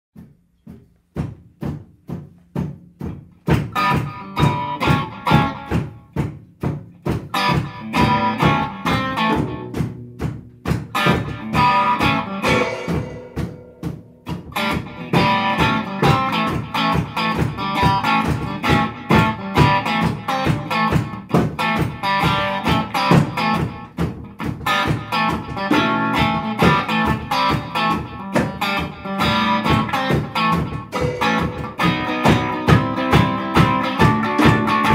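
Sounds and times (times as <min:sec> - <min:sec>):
steady drum beat: 0:00.8 - 0:34.9
psychedelic rock band playing: 0:07.4 - 0:09.8, 0:11.0 - 0:23.8, 0:24.8 - 0:34.9.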